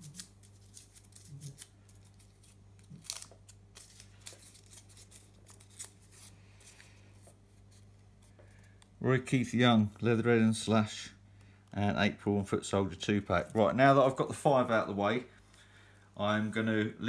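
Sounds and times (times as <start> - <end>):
paper crinkling: 0.0 - 10.0
steady low hum: 0.0 - 17.0.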